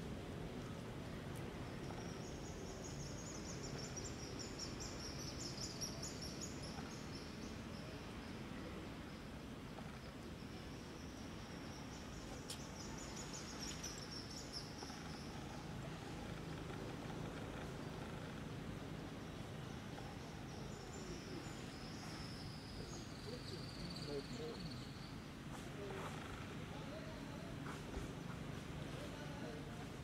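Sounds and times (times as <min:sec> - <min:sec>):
steady low hiss: 0:00.0 - 0:30.0
rapid insect trill: 0:01.6 - 0:25.1.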